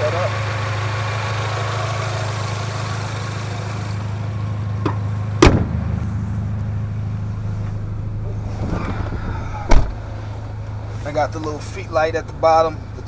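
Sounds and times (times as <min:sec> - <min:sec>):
car engine idling: 0:00.0 - 0:13.0
car hood slamming shut: 0:04.8 - 0:05.9, 0:08.4 - 0:10.5.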